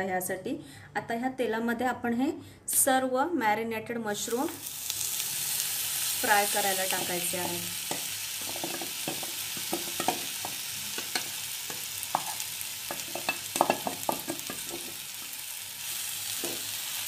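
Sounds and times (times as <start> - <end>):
mushrooms sizzling in hot oil: 4.2 - 17.0
spoon tapping bowl and pan: 7.0 - 15.0, 16.4 - 16.7.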